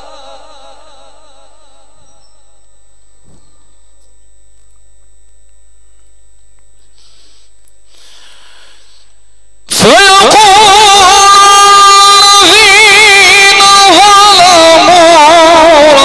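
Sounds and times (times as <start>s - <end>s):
person reciting melodically: 0.0s - 2.6s, 9.7s - 16.0s
electrical hum: 0.0s - 16.0s
faint breathy hisses: 6.8s - 9.5s.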